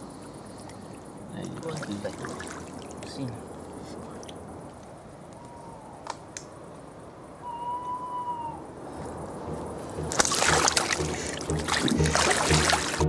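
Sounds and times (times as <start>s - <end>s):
faint clicks: 4.2s - 6.6s
bite alarm beep: 9.5s - 13.0s.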